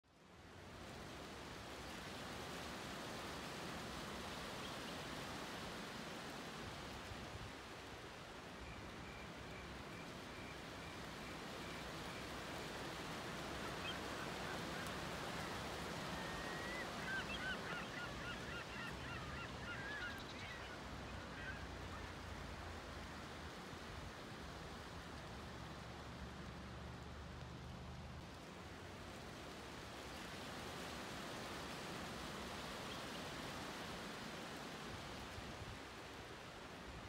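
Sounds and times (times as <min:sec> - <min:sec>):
wind: 0:00.0 - 0:37.0
surf: 0:00.4 - 0:37.0
chirping and squawking calls: 0:13.7 - 0:22.1
birds calling: 0:13.7 - 0:22.2.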